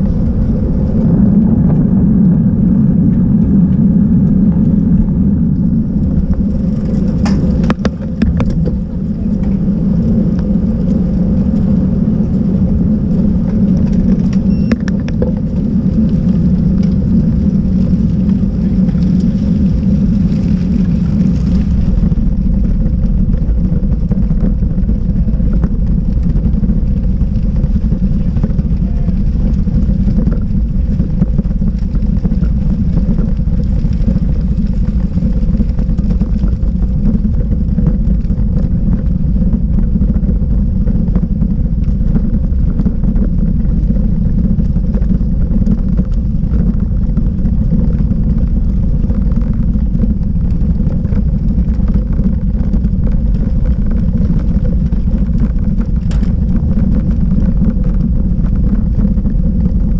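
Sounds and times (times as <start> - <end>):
bicycle tyres rumbling on cobblestones: 0.0 - 59.9
bike and mount rattling: 6.4 - 9.7.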